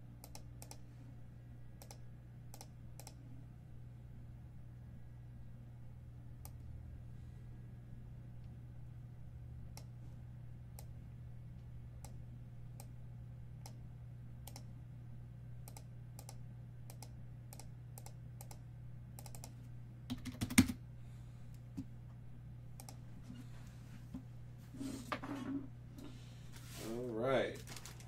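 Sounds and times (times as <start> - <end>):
steady low hum: 0.0 - 28.0
typing on computer keyboard: 20.1 - 20.8.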